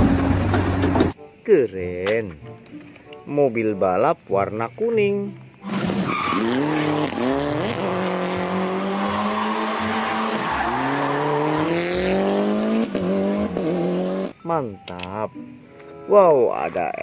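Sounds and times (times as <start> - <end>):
car engine revving hard: 5.9 - 14.3.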